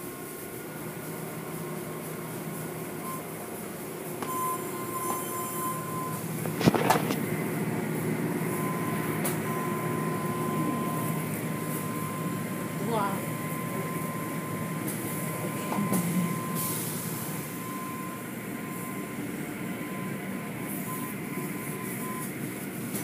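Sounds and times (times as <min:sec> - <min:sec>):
car wash machinery humming: 0:00.0 - 0:23.0
thin mechanical whine: 0:04.2 - 0:07.3.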